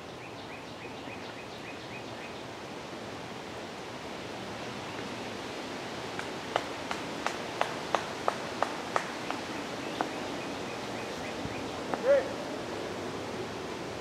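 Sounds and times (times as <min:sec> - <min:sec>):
outdoor noise: 0:00.0 - 0:14.0
short sharp claps: 0:06.2 - 0:09.4.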